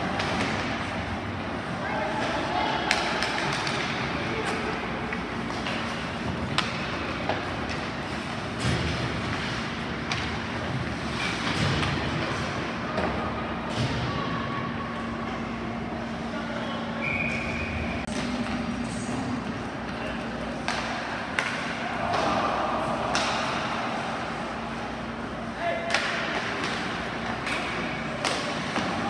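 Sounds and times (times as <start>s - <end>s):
hockey sticks and puck knocking: 2.2s - 12.4s, 19.8s - 24.0s, 25.9s - 29.0s.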